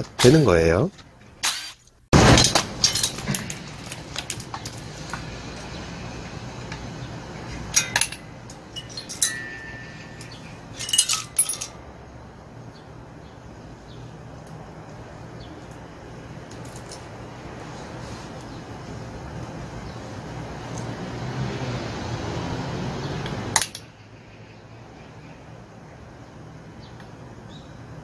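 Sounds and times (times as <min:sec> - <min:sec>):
metal engine parts clinking: 0:02.3 - 0:05.7, 0:06.8 - 0:11.9, 0:16.5 - 0:17.2, 0:23.5 - 0:23.9.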